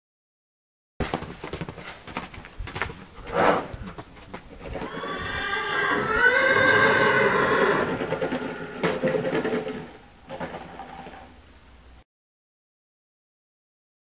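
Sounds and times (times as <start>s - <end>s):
horse neighing: 3.2s - 3.9s, 4.7s - 11.2s.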